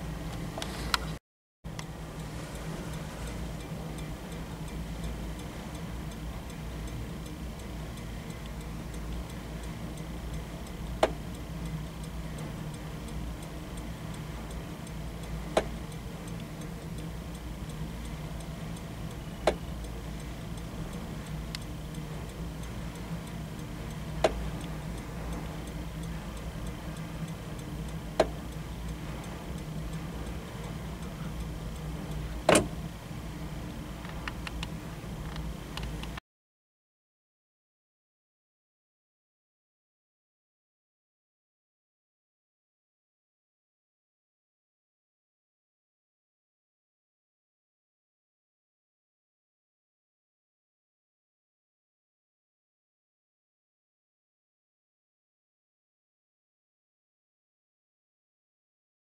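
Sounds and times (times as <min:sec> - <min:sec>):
steady low hum: 0:00.0 - 0:36.2
turn-signal switch clicking: 0:10.8 - 0:11.4, 0:15.5 - 0:17.4, 0:24.1 - 0:24.8, 0:28.1 - 0:28.5, 0:32.1 - 0:32.8.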